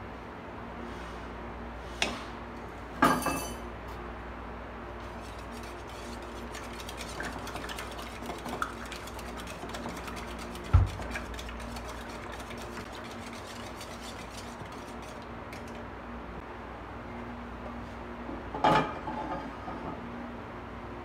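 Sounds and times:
clinks on ceramic bowl: 3.0 - 3.6
whisk beating eggs in bowl: 5.0 - 15.9.

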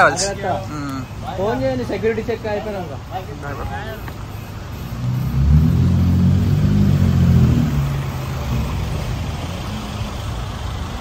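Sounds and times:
traffic noise: 0.0 - 11.0
vehicle engine running close: 3.4 - 11.0.

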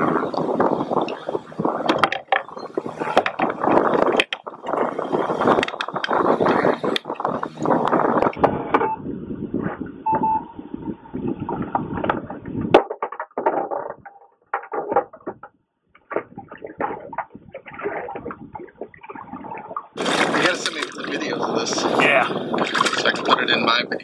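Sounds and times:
water splashing: 0.0 - 8.4, 16.0 - 23.7
knocks and rustles on kayak: 0.0 - 8.9, 11.3 - 21.2, 22.5 - 23.3.

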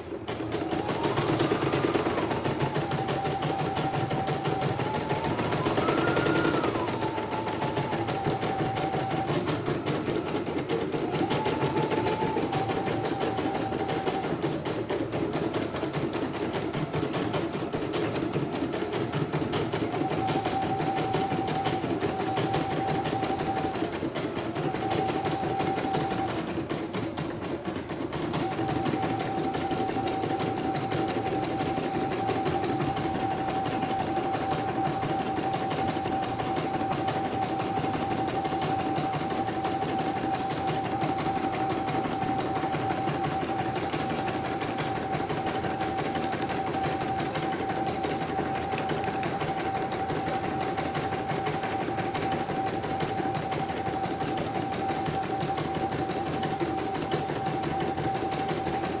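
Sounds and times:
embroidery machine stitching: 0.0 - 59.0.

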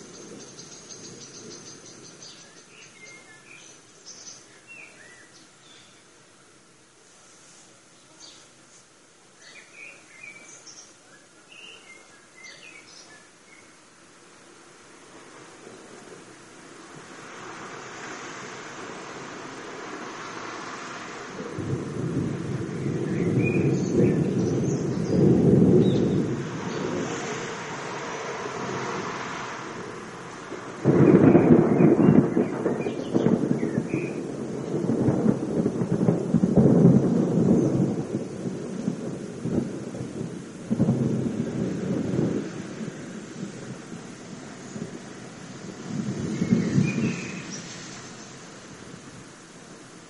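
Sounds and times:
songbirds chirping: 0.0 - 41.6, 42.2 - 50.0
outdoor background hiss: 0.0 - 50.0
thunder rumbling: 15.0 - 50.0
crackling peal of thunder: 15.2 - 50.0.

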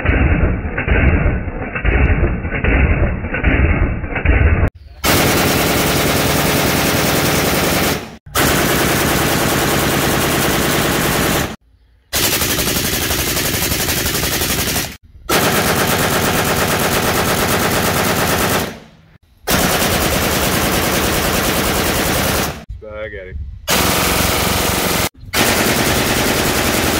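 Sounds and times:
automatic rifle gunfire bursts: 5.0 - 11.6, 12.2 - 18.8, 19.5 - 22.7, 23.7 - 26.9.

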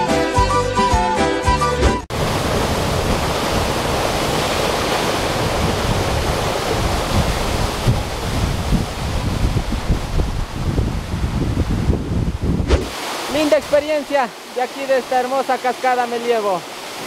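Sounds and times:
wind buffeting microphone: 2.1 - 13.0
waterfall rushing: 2.1 - 17.0.

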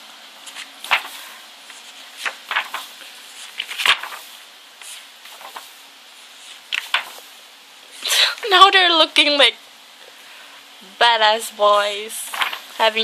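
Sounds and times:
book pages turning: 0.4 - 7.3, 12.3 - 12.8.

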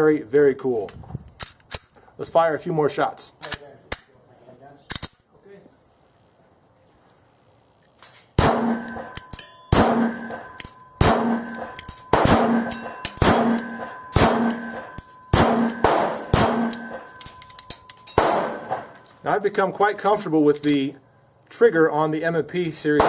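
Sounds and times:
steel target clanging: 8.3 - 20.8
pistol shots: 8.4 - 17.4, 18.0 - 19.0.

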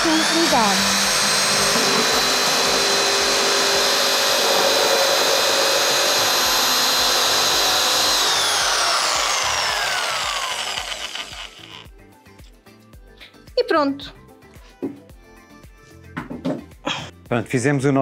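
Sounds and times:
jigsaw cutting wood: 0.0 - 11.9.

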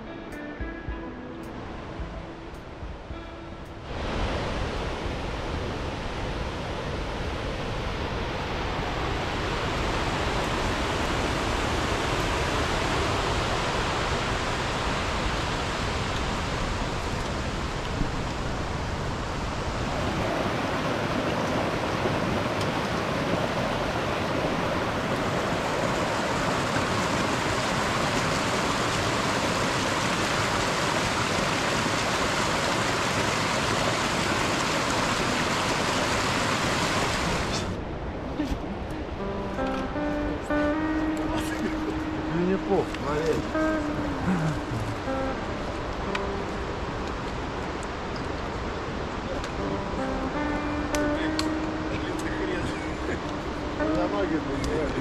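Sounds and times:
creek rushing over rocks: 3.8 - 38.4, 40.8 - 55.0.

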